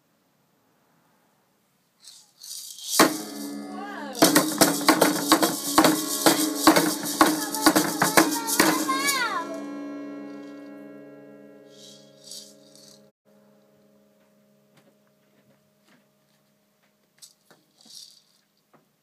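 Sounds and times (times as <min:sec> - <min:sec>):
maraca rattle: 0:02.0 - 0:09.6, 0:11.7 - 0:13.1, 0:17.2 - 0:18.6
guitar strings ringing: 0:03.0 - 0:15.8.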